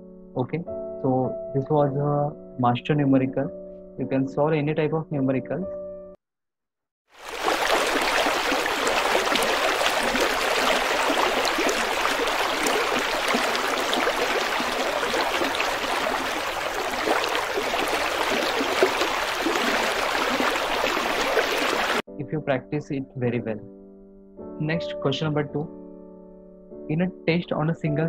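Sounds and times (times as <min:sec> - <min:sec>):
stream flowing over stones: 0:07.2 - 0:22.0.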